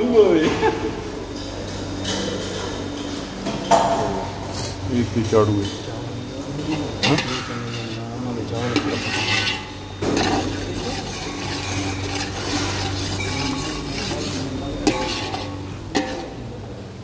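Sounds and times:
wooden spatula scraping pot: 6.6s - 16.5s.

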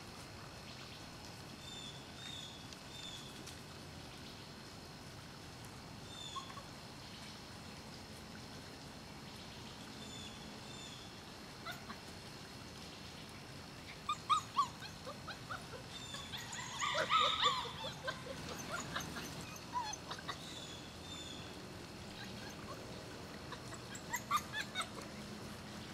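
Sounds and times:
puppies whimpering and yipping: 11.6s - 12.0s, 13.9s - 20.8s, 22.1s - 25.2s.

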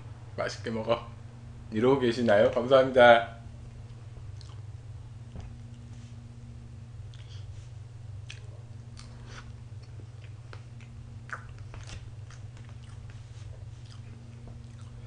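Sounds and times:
steady low hum: 0.0s - 15.0s
person chewing cake: 3.8s - 5.9s, 7.0s - 7.5s, 8.1s - 15.0s
wet mouth clicks and smacks: 8.2s - 13.2s.

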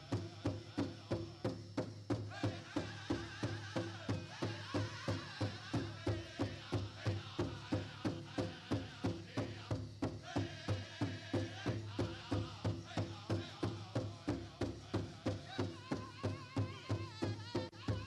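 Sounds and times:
big drum steady beat: 0.0s - 18.0s
high-pitched group singing: 2.3s - 14.4s.

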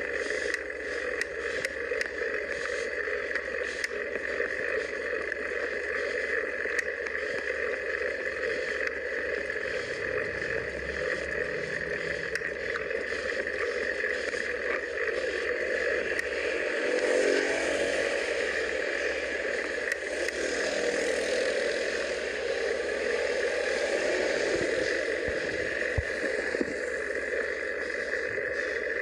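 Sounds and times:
road noise: 0.0s - 29.0s
faint ticks: 0.2s - 16.5s, 18.2s - 20.6s.

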